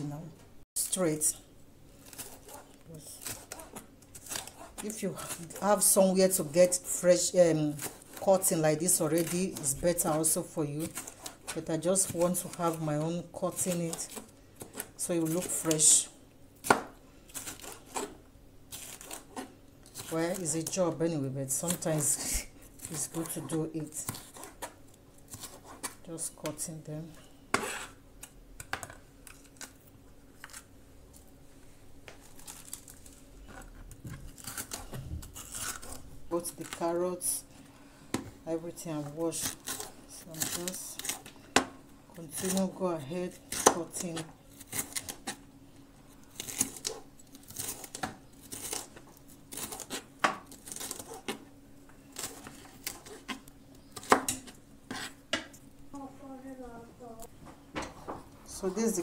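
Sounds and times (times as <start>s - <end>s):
knife scraping through pepper: 2.0s - 7.0s, 7.7s - 15.7s, 17.3s - 20.6s, 21.7s - 26.0s, 27.5s - 28.0s, 34.3s - 36.8s, 43.5s - 45.4s, 46.2s - 51.4s, 52.1s - 54.2s, 54.9s - 55.2s.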